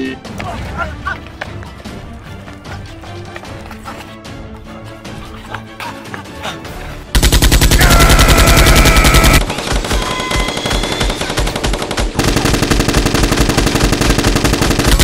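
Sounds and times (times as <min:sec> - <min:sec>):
machine-gun fire: 0:07.2 - 0:15.0.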